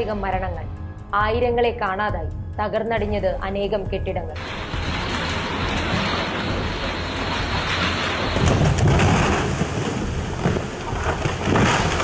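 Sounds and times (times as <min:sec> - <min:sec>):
heavy rain: 0:04.4 - 0:12.0
rushing floodwater: 0:04.4 - 0:12.0.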